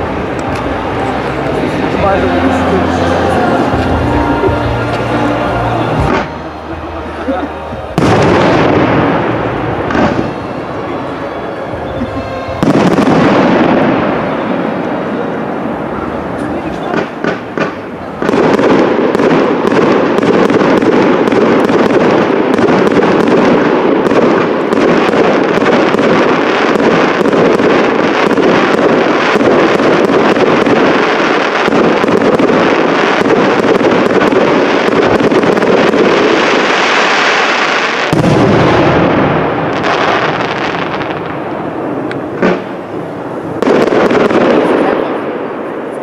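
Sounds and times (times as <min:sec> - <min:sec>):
fireworks bursts and crackling: 0:00.0 - 0:46.0.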